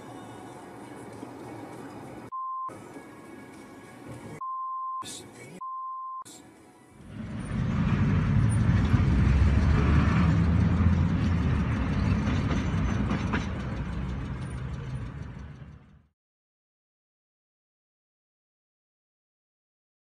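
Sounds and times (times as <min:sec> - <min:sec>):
vehicle road noise: 0:00.0 - 0:05.7, 0:06.3 - 0:16.1.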